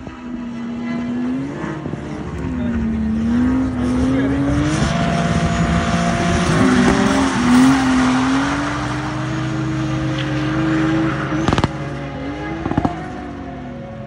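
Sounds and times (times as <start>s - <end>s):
car engine at high revs: 0.0s - 14.0s
sharp cracks: 11.3s - 11.9s.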